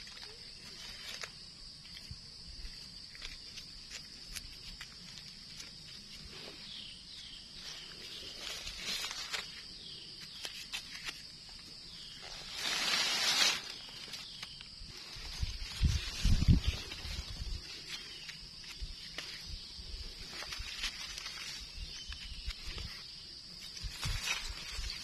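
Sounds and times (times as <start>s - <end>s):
insect drone: 0.0s - 25.0s
rustle: 0.0s - 25.0s
falling chirps: 5.6s - 25.0s.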